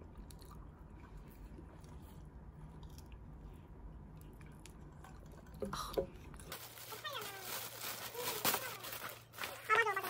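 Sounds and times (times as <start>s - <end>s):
faint chewing: 0.0s - 6.6s
low room hum: 0.0s - 10.0s.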